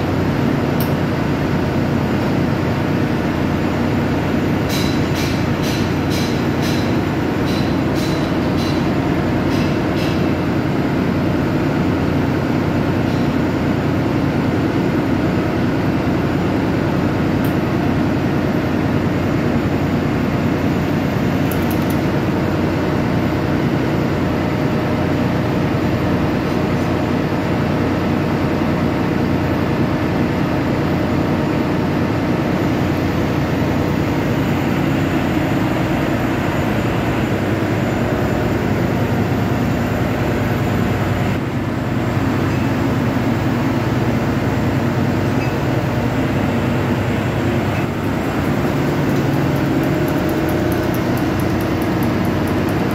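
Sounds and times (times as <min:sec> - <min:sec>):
heavy machinery droning: 0:32.0 - 0:52.9.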